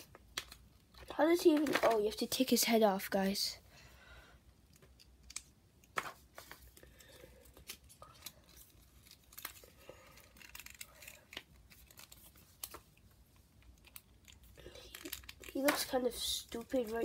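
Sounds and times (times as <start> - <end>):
plastic figure parts clicking and scraping: 0.0 - 2.6, 4.5 - 17.0.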